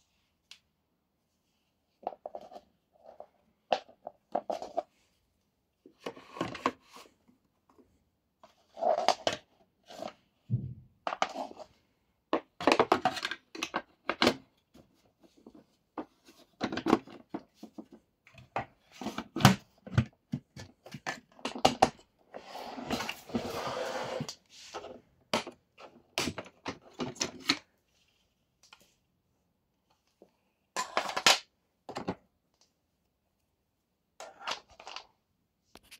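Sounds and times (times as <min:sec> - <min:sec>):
plastic parts clicking and knocking: 0:12.3 - 0:14.8, 0:15.4 - 0:22.1.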